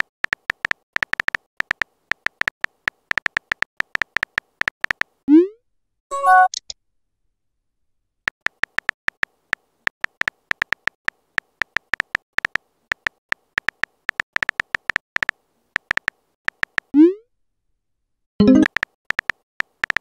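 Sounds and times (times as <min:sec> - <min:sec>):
phone keyboard taps: 0:00.2 - 0:05.1, 0:08.3 - 0:09.3, 0:09.9 - 0:16.9, 0:18.4 - 0:20.0.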